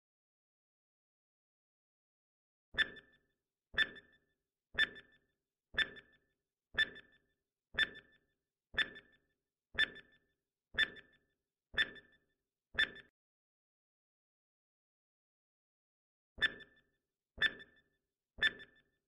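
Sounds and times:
timer ticks with ringing tail: 2.8s - 3.2s, 3.8s - 4.2s, 4.8s - 5.2s, 5.8s - 10.2s, 10.8s - 11.2s, 11.8s - 12.2s, 17.4s - 17.8s, 18.4s - 18.8s.

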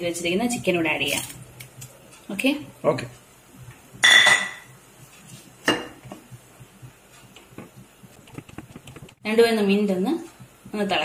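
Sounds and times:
dishware clink: 4.0s - 4.7s.

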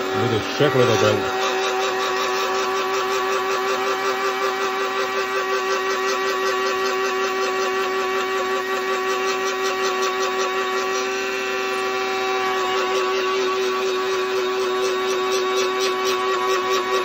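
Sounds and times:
electric spice grinder running: 0.0s - 17.0s.

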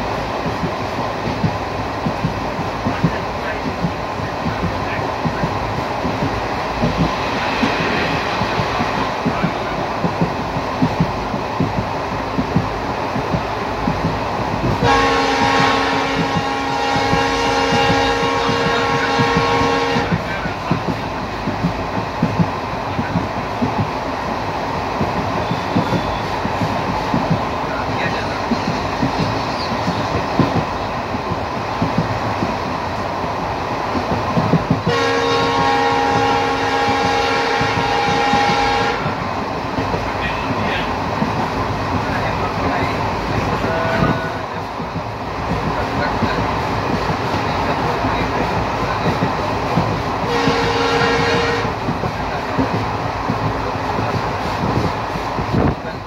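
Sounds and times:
train rumble and wheel clicks: 0.0s - 56.0s
train horn blast: 14.8s - 20.4s, 34.8s - 39.2s, 43.5s - 44.5s, 50.2s - 51.9s.

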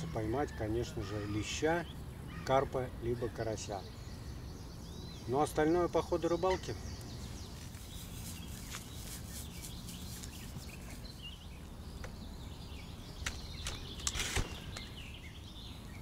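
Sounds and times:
small birds chirping: 0.0s - 16.0s
brief rustle: 13.2s - 14.9s.

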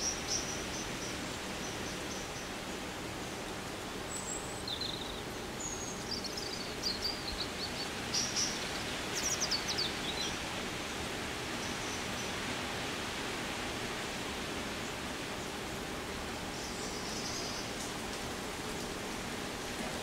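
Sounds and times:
steady hiss: 0.0s - 20.0s
small birds chirping: 4.0s - 10.5s, 16.5s - 19.0s.

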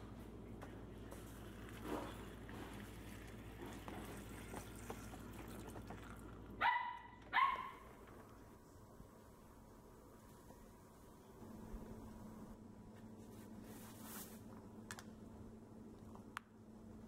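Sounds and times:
water pouring into a pot: 1.6s - 6.6s
short high yelps: 6.6s - 7.8s.

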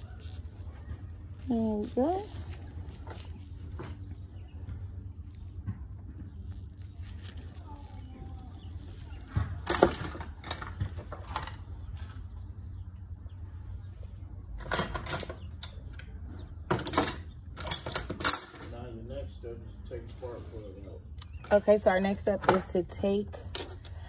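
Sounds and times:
steady low rumble: 0.0s - 14.6s
small hard parts clinking: 9.6s - 11.7s, 14.6s - 16.1s, 16.7s - 18.8s.

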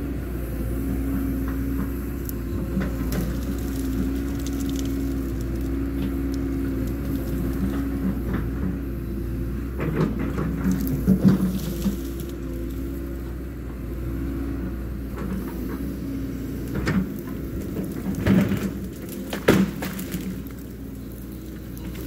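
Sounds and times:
excavator diesel engine running: 0.0s - 22.0s
bucket knocking and cracking brush: 17.9s - 20.6s.

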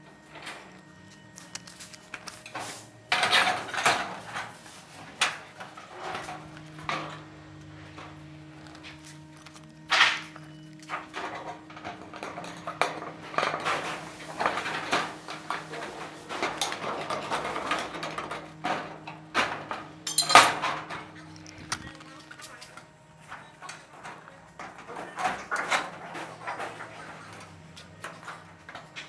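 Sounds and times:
metal hand tools clinking: 20.0s - 22.6s.

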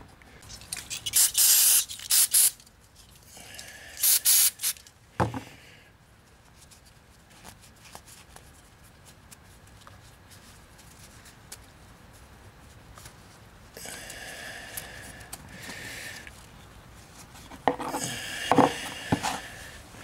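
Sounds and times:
aerosol spray can hissing: 1.1s - 2.6s, 4.0s - 4.8s.

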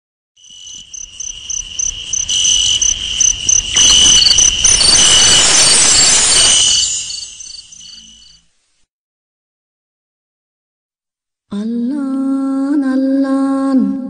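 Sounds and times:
crickets chirping: 0.4s - 8.5s
loud rushing noise: 3.4s - 8.3s.

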